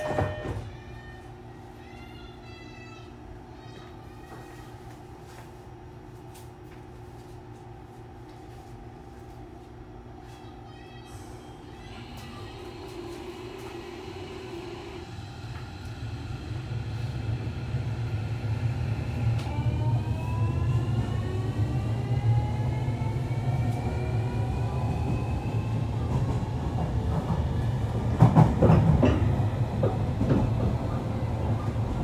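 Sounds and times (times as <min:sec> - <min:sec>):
train running rumble: 0:11.6 - 0:32.0
electric train motor whine: 0:11.8 - 0:26.0
rail-joint clacks: 0:28.2 - 0:31.0.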